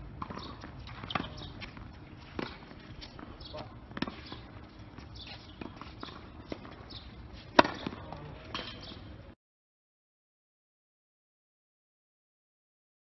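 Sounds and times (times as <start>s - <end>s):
racket striking tennis ball: 0.2s - 9.0s.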